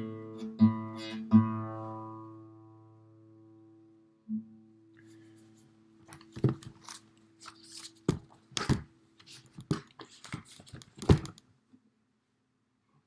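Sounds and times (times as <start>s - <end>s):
paper pages flipping and rustling: 5.2s - 11.4s.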